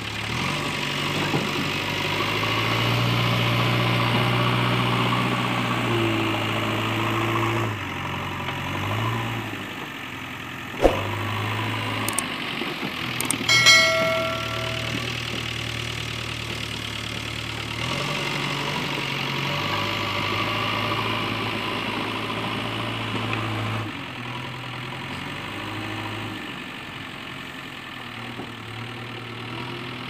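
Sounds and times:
click and chime sound effect: 0:10.8 - 0:11.2, 0:13.2 - 0:15.2
sharp knock: 0:10.8 - 0:11.2, 0:13.5 - 0:15.1.

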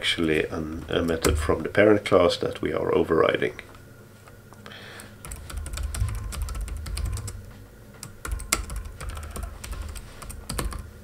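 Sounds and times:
typing on a keyboard: 0:05.2 - 0:07.4, 0:08.0 - 0:10.9.

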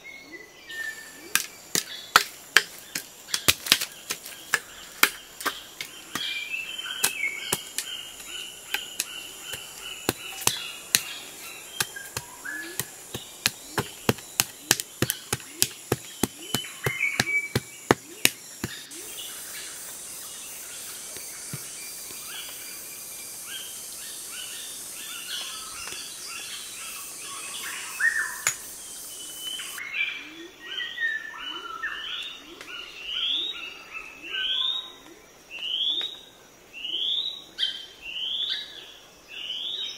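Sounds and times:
steady high hiss: 0:00.0 - 0:30.0
birds chirping: 0:00.0 - 0:36.2
hoe chopping stony soil: 0:01.2 - 0:19.0.

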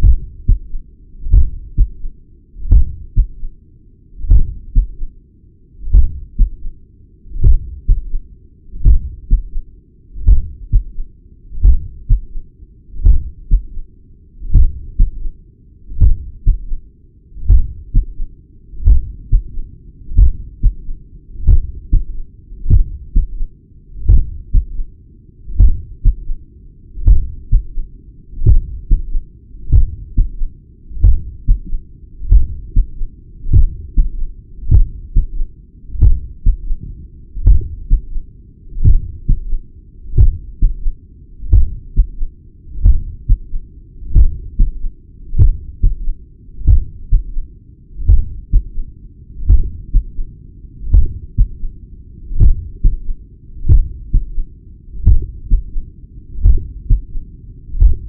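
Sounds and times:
heart murmur: 0:00.0 - 0:02.1, 0:02.7 - 0:03.5, 0:04.3 - 0:05.0, 0:05.9 - 0:06.6, 0:07.4 - 0:08.1, 0:08.8 - 0:09.6, 0:10.2 - 0:11.0, 0:11.6 - 0:12.4, 0:13.0 - 0:13.8, 0:14.5 - 0:15.2, 0:16.0 - 0:16.8, 0:17.4 - 0:18.2, 0:18.8 - 0:19.6, 0:20.2 - 0:22.1, 0:22.7 - 0:23.4, 0:24.0 - 0:24.8, 0:25.6 - 0:26.4, 0:27.0 - 0:27.8, 0:28.4 - 0:35.4, 0:36.0 - 0:38.2, 0:38.8 - 0:39.5, 0:40.1 - 0:40.9, 0:41.5 - 0:42.2, 0:42.8 - 0:44.8, 0:45.4 - 0:46.0, 0:46.6 - 0:47.3, 0:48.0 - 0:48.7, 0:49.4 - 0:50.2, 0:50.9 - 0:51.6, 0:52.4 - 0:53.1, 0:53.7 - 0:54.4, 0:55.0 - 0:55.8, 0:56.4 - 0:57.1, 0:57.8 - 0:58.0
heartbeat through stethoscope: 0:00.0 - 0:03.5, 0:04.2 - 0:05.1, 0:05.8 - 0:06.7, 0:07.4 - 0:09.6, 0:10.2 - 0:12.4, 0:13.0 - 0:13.8, 0:14.4 - 0:15.3, 0:15.9 - 0:16.8, 0:17.4 - 0:24.9, 0:25.5 - 0:26.4, 0:27.0 - 0:27.8, 0:28.4 - 0:38.2, 0:38.8 - 0:47.4, 0:48.0 - 0:48.8, 0:49.4 - 0:50.2, 0:50.9 - 0:51.7, 0:52.4 - 0:55.8, 0:56.4 - 0:57.2, 0:57.8 - 0:58.0.

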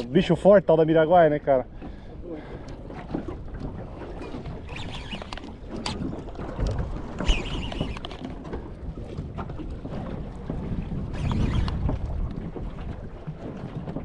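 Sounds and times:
water slapping against boat: 0:00.0 - 0:14.0
wind buffeting microphone: 0:01.6 - 0:14.0
high squeak: 0:04.6 - 0:05.5, 0:07.2 - 0:08.1, 0:11.1 - 0:11.7.

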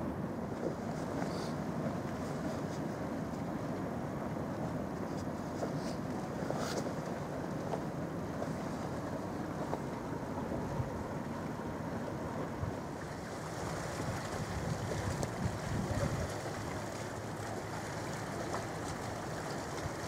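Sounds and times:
wind buffeting microphone: 0:12.2 - 0:17.0.

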